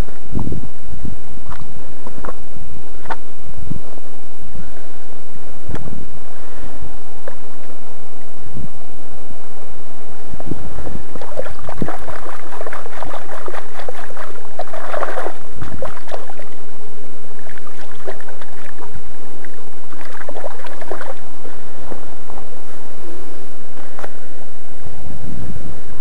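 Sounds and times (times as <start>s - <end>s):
shallow river water splashing: 10.4s - 23.0s.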